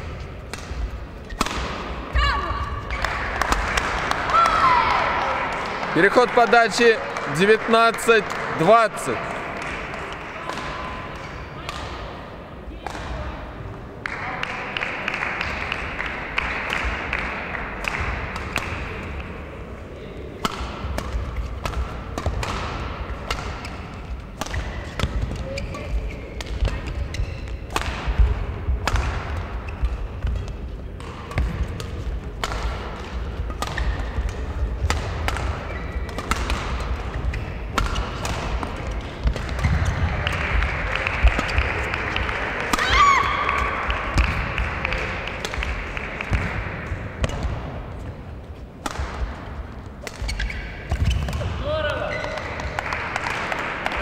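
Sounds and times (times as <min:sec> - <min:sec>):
play on neighbouring courts: 0:00.0 - 0:54.0
racket striking shuttlecock: 0:00.1 - 0:02.0, 0:20.4 - 0:41.6, 0:42.2 - 0:47.8, 0:48.8 - 0:51.6.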